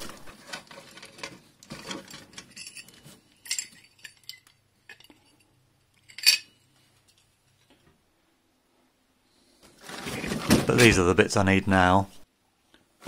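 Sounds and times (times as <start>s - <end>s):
metal parts clinking and rattling: 0.3s - 6.6s.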